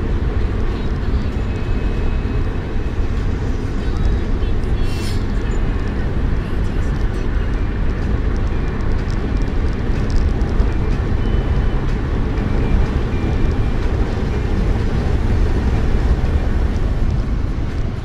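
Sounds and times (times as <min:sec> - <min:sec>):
car engine and tyre rumble: 0:00.0 - 0:18.0.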